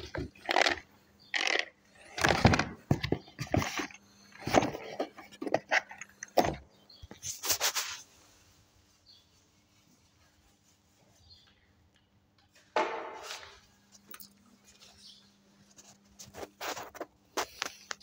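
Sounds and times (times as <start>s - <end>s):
knocks and clatter: 12.7s - 13.6s.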